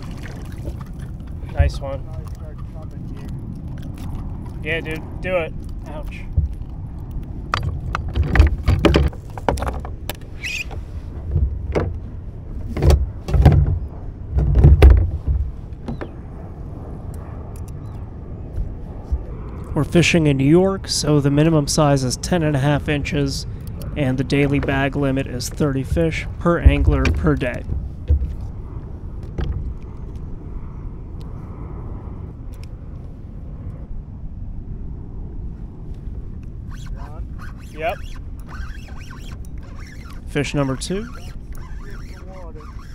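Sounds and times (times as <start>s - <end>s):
wind buffeting microphone: 0.0s - 42.9s
thumps and knocks on plastic kayak: 12.6s - 16.1s.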